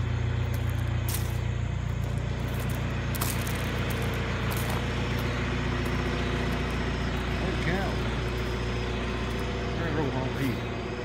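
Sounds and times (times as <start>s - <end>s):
backhoe engine running: 0.0s - 11.0s.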